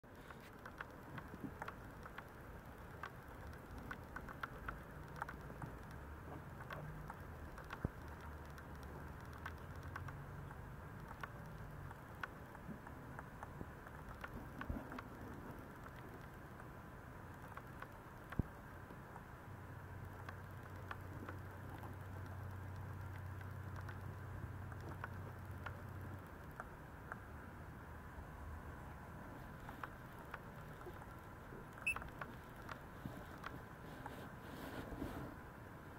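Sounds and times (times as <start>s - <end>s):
low steady hum: 0.0s - 35.9s
puppy paws tapping and scratching: 0.2s - 16.7s, 31.8s - 35.4s.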